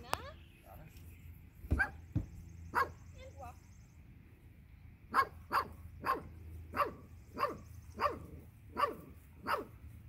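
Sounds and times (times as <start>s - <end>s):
dog barking: 1.7s - 2.0s, 2.7s - 3.0s, 5.1s - 9.8s.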